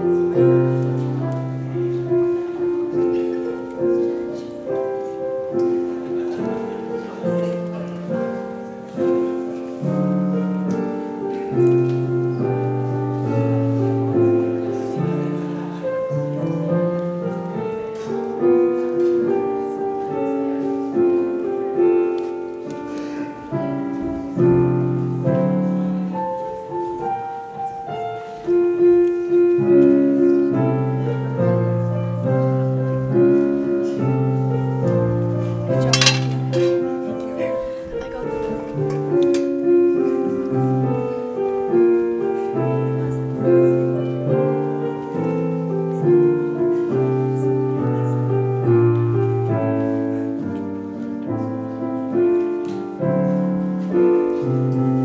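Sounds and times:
slow solo piano piece: 0.0s - 55.0s.

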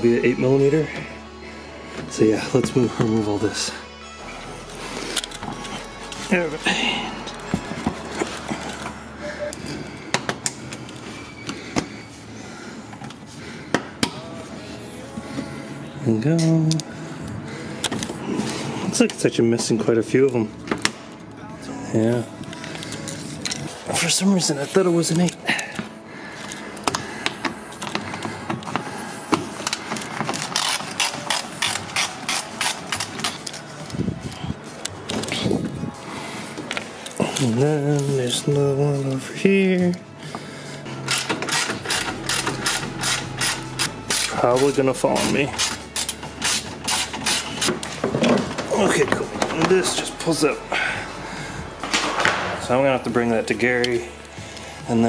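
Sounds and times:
hand tools clicking and knocking: 41.0s - 50.1s.

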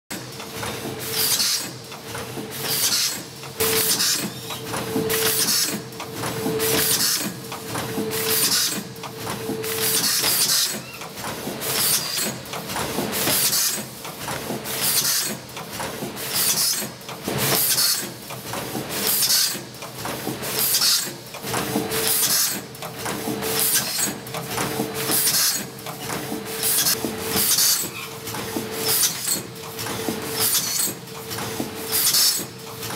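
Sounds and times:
mechanical running noise: 0.1s - 32.9s
pneumatic air hiss: 31.9s - 32.4s.

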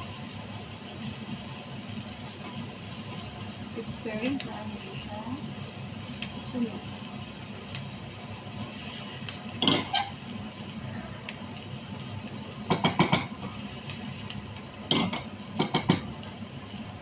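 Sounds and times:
spatula scraping a frying pan: 9.6s - 10.2s.

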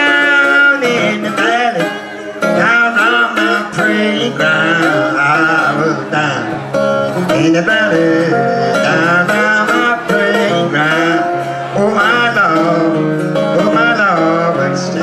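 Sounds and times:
acoustic guitar playing: 0.0s - 15.0s.

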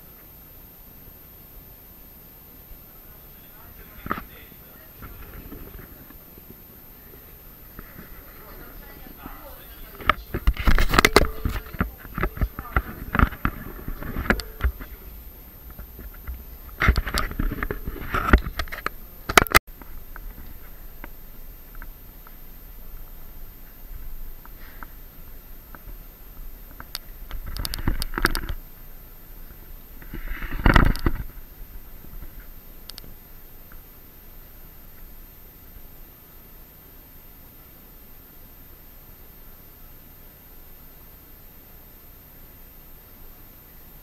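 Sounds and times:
voices: 2.4s - 19.6s
camera handling noise: 9.8s - 19.6s.

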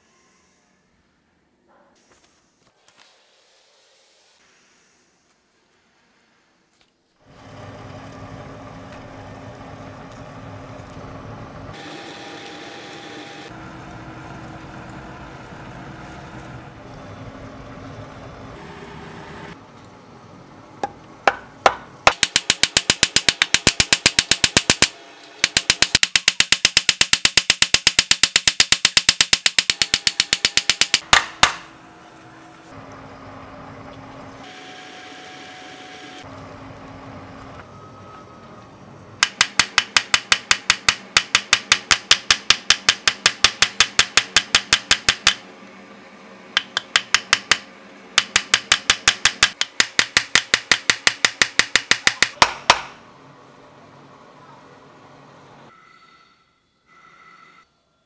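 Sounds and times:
hammer striking metal on anvil: 20.8s - 24.9s, 25.5s - 31.7s, 39.2s - 45.4s, 48.2s - 53.0s.

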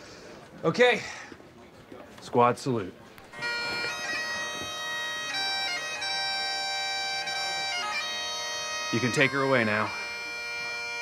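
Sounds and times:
bagpipes playing slow tune: 3.3s - 11.0s.

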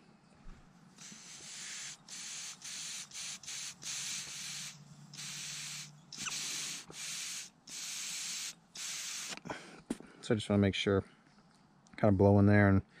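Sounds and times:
hissing puffs of breath: 1.0s - 10.1s.

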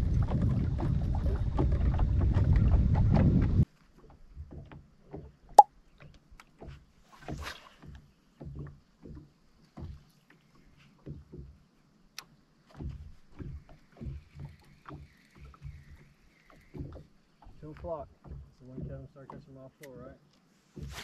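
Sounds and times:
waves lapping against boat hull: 0.0s - 21.0s.

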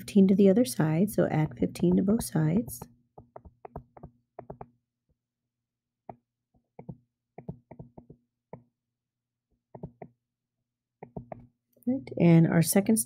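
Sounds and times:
stylus tapping on touchscreen: 0.8s - 4.8s, 6.8s - 8.7s, 9.7s - 10.2s, 11.0s - 11.5s.

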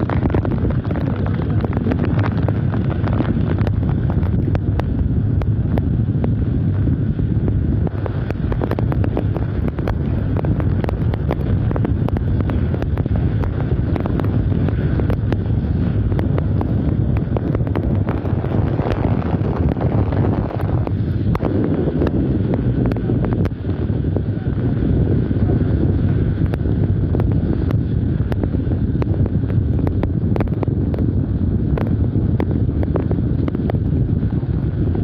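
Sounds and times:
heavy rain: 0.0s - 35.0s
sharp crackles: 0.0s - 35.0s
storm wind buffeting microphone: 0.0s - 35.0s.

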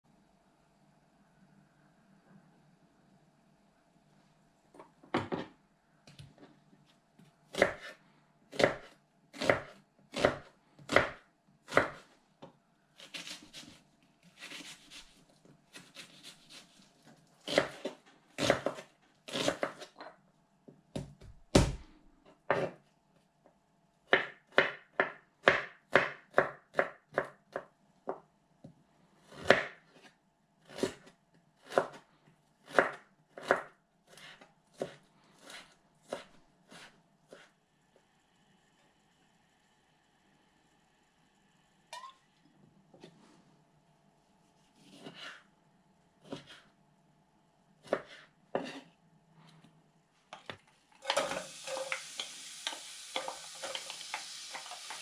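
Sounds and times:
knife chopping on wooden board: 7.5s - 7.9s, 8.5s - 12.0s, 17.5s - 19.9s, 22.5s - 22.8s, 24.1s - 27.3s, 29.4s - 29.8s, 32.7s - 37.4s, 47.8s - 48.8s.

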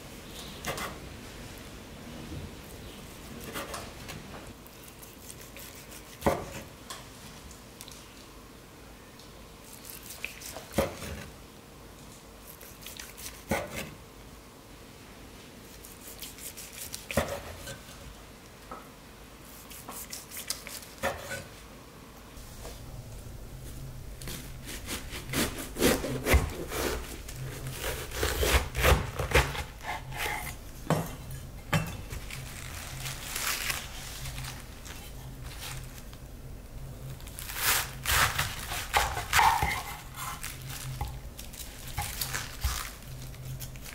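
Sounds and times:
knife crunching through cabbage: 4.7s - 6.6s, 9.6s - 11.3s, 12.4s - 13.9s, 15.7s - 17.6s, 19.5s - 21.1s, 24.2s - 30.6s, 32.0s - 36.2s, 37.1s - 43.9s
steady low hum: 21.6s - 43.9s
knife slicing meat on board: 24.3s - 31.1s, 37.6s - 41.2s.

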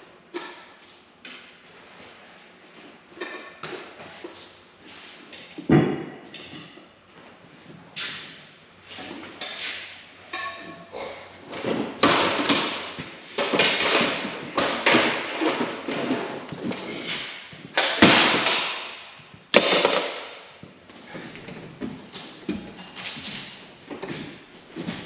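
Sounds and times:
metal tools knocking and clanking: 19.5s - 20.3s, 22.1s - 23.5s.

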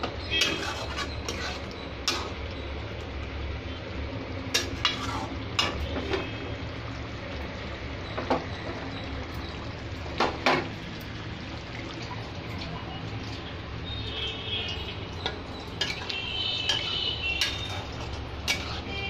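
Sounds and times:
curry sizzling: 0.0s - 19.0s
metal spatula scraping a pot: 0.2s - 2.4s, 4.5s - 6.3s, 16.7s - 19.0s.

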